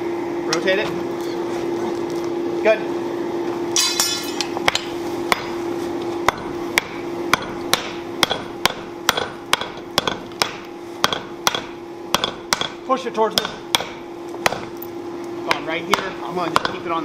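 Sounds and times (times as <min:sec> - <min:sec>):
steady hum: 0:00.0 - 0:17.0
hammer striking hot metal on anvil: 0:03.8 - 0:05.6, 0:06.3 - 0:14.8, 0:15.5 - 0:17.0.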